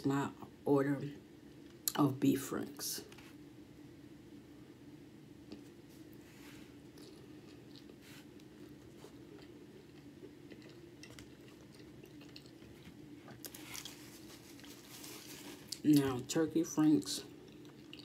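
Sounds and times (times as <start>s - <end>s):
steady low hum: 0.0s - 18.0s
chewing and mouth smacks: 6.9s - 14.8s, 17.4s - 18.0s.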